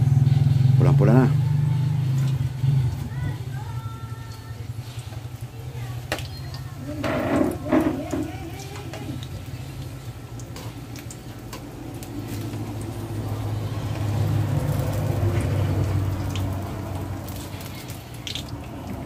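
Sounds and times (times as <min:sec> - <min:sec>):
deep-frying in hot oil: 0:00.0 - 0:19.0
metal tongs clicking on pan: 0:10.4 - 0:11.7.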